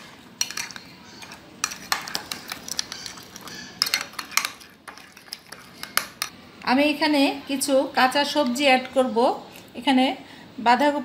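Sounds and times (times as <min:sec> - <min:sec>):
metal spoon scraping glass bowl: 0:00.4 - 0:06.3.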